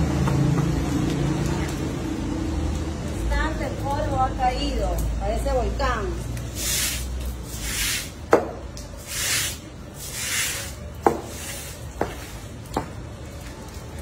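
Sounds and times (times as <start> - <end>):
broom swishing on wet floor: 6.4 - 8.3, 9.0 - 12.6.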